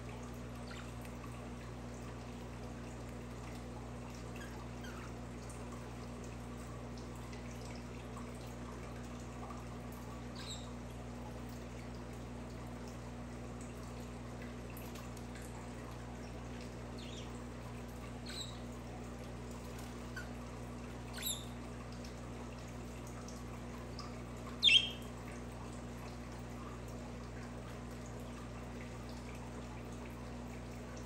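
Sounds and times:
steady hiss and low hum: 0.0s - 31.0s
budgerigars chirping: 21.2s - 21.5s, 24.6s - 25.0s.

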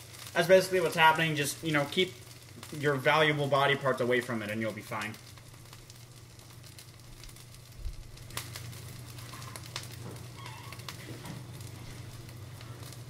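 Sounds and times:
chicken sizzling in hot oil: 0.0s - 13.0s
oil popping: 4.7s - 13.0s.

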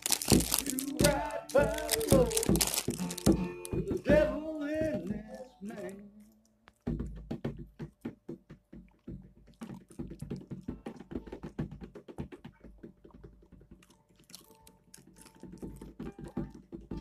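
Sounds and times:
dog crunching popcorn: 0.0s - 3.8s, 13.5s - 16.6s.

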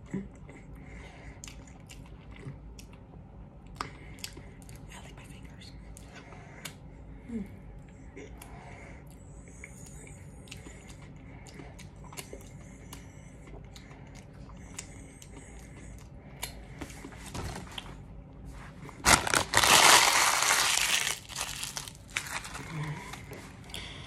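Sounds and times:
paper crumpling: 19.0s - 23.1s.

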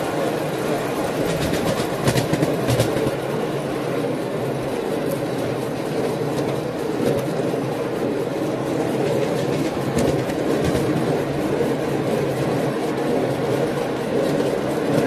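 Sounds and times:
train wheels rolling on rail: 0.0s - 15.0s
sharp clicks of wheels: 1.1s - 3.2s.

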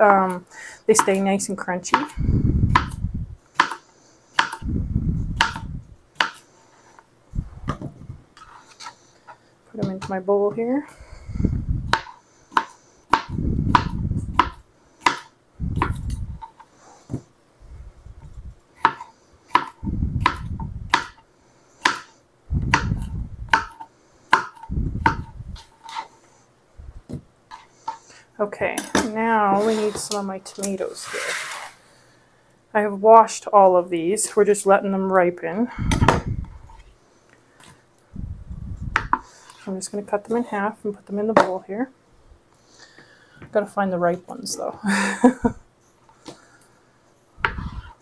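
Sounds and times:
dull low rumbling: 4.6s - 6.0s, 11.1s - 11.9s, 13.4s - 14.4s, 19.8s - 20.9s, 22.5s - 23.5s, 24.7s - 25.6s, 38.1s - 39.1s.

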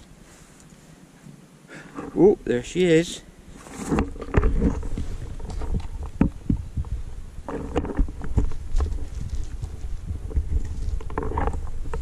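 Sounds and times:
soil rustling and handling knocks: 3.5s - 12.0s
wind buffeting microphone: 4.1s - 12.0s.

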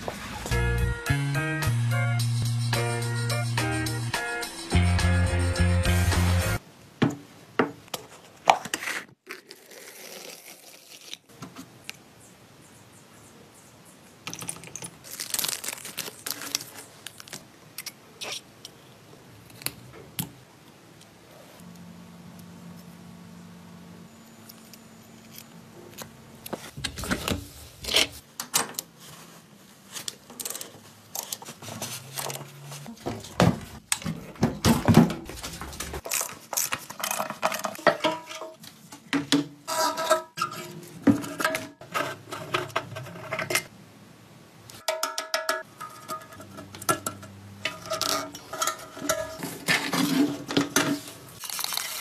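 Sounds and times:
metal tools and parts clinking: 14.2s - 15.3s, 44.9s - 52.0s.

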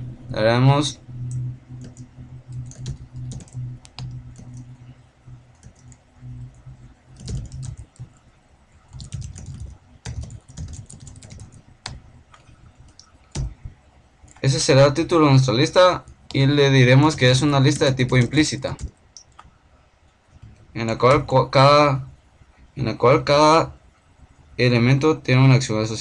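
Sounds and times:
low steady hum: 0.0s - 26.0s
keyboard typing: 0.7s - 8.2s, 8.9s - 13.6s, 15.5s - 19.5s.

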